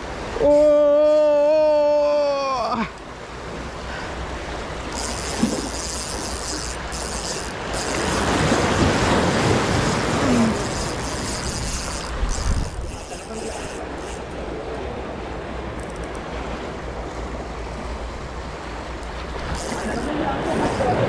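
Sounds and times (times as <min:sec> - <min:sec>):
sea surf washing ashore: 0:00.0 - 0:21.0
wind rumbling on microphone: 0:04.9 - 0:18.5.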